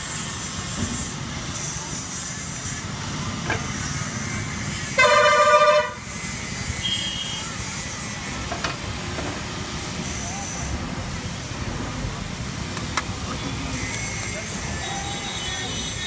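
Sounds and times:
street traffic rumble: 0:00.0 - 0:16.0
vehicle horn honking: 0:05.0 - 0:06.1, 0:06.8 - 0:07.5, 0:14.8 - 0:16.0.

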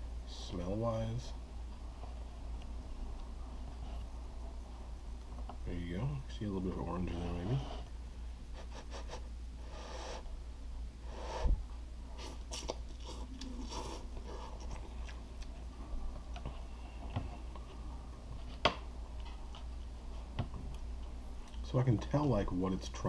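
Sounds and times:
steady low hum: 0:00.0 - 0:23.0
chewing noodles: 0:12.2 - 0:16.5.

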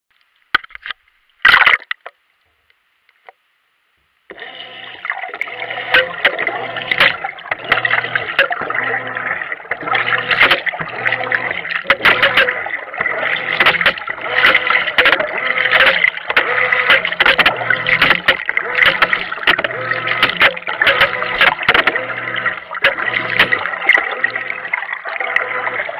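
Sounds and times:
water churning in washer: 0:04.3 - 0:25.9
clicks: 0:09.7 - 0:24.8.

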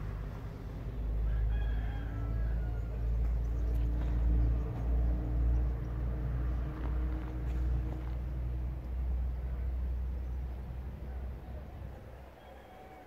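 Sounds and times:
rooster crowing: 0:01.1 - 0:03.2, 0:12.4 - 0:13.0.

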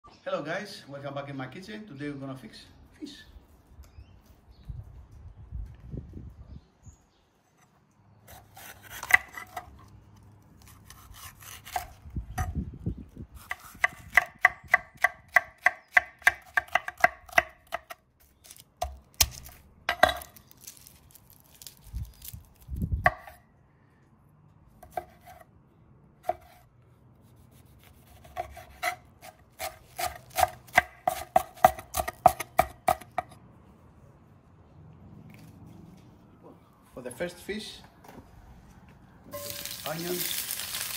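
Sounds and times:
knife chopping on wooden board: 0:08.3 - 0:09.7, 0:13.4 - 0:18.0, 0:18.8 - 0:20.3, 0:24.8 - 0:25.4, 0:26.2 - 0:26.6, 0:27.8 - 0:33.4.

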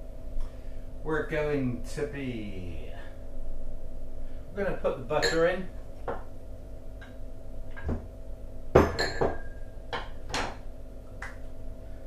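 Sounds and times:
utensil clinking against bowls: 0:05.2 - 0:05.5, 0:08.9 - 0:09.6
bowl ringing: 0:05.2 - 0:05.7, 0:08.8 - 0:09.8.

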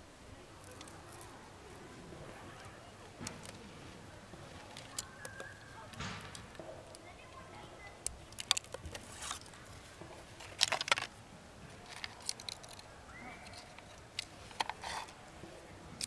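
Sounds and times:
cables and connectors clicking: 0:00.6 - 0:01.4, 0:02.5 - 0:03.7, 0:04.5 - 0:07.4, 0:08.0 - 0:09.6, 0:10.4 - 0:15.2.

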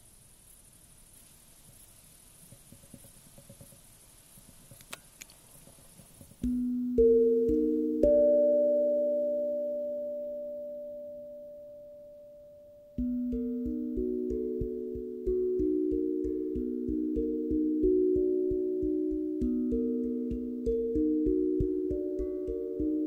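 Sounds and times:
faint background hiss: 0:00.0 - 0:23.0
tuned metal hand drum notes: 0:06.4 - 0:23.0.

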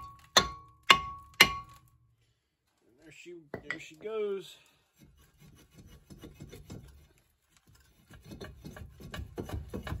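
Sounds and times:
gloved hand rubbing and scraping: 0:04.3 - 0:10.0.

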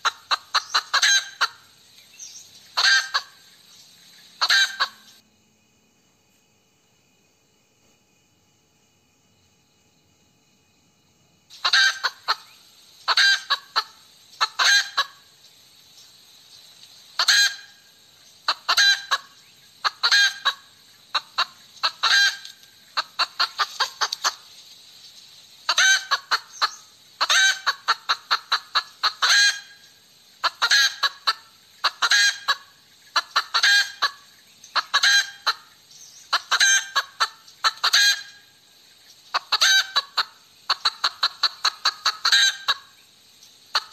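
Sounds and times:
hen cackling: 0:00.0 - 0:01.8, 0:02.8 - 0:03.5, 0:04.4 - 0:05.2, 0:11.5 - 0:15.4, 0:17.2 - 0:24.5, 0:25.6 - 0:38.6, 0:39.3 - 0:43.0, 0:43.7 - 0:43.9.

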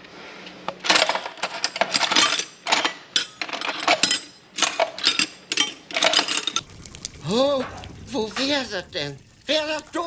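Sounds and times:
spanners clinking in a drawer: 0:00.8 - 0:06.6.

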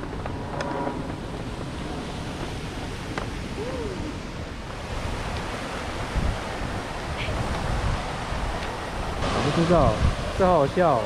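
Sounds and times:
fountain water splashing: 0:02.2 - 0:11.0.

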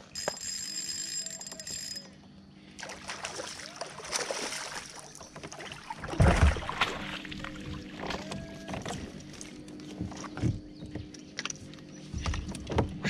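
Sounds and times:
fishing reel whirring: 0:00.0 - 0:02.2
water splashing: 0:02.8 - 0:09.5
heavy thump and splash: 0:03.1 - 0:08.2.

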